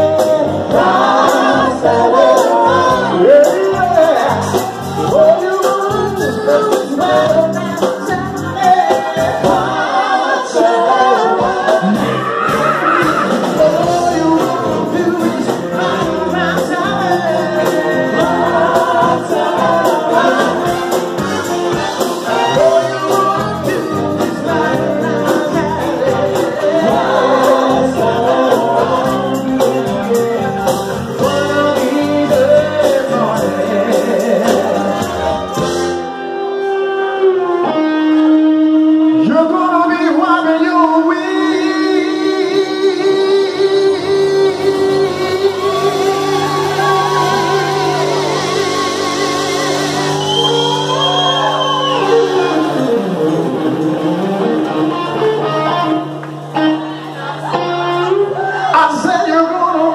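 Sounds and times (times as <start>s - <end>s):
man and woman singing: 0.0s - 35.6s, 39.2s - 49.7s
electric guitar: 0.0s - 59.9s.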